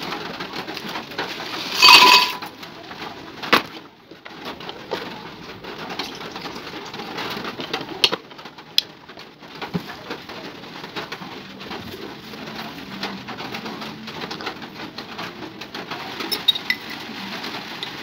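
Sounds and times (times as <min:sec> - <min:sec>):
leaves dropping into blender jar: 0:00.7 - 0:02.6.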